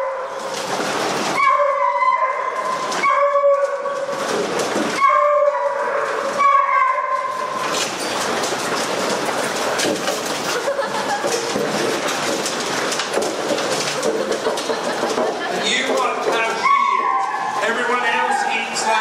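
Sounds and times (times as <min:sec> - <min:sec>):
dogs feeding at metal trough: 0:00.0 - 0:19.0
hounds howling: 0:01.3 - 0:04.2, 0:05.0 - 0:07.7, 0:16.5 - 0:19.0.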